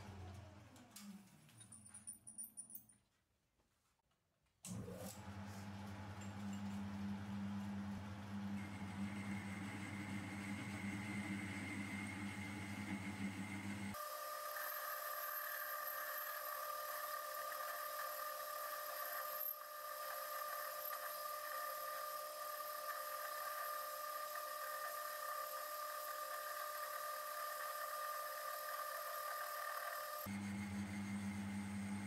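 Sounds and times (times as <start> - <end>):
metal lathe whining: 14.1 - 30.9.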